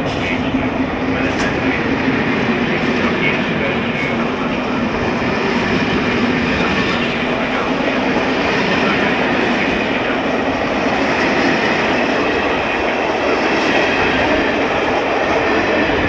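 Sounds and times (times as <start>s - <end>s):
train wheels on rails: 0.0s - 16.0s.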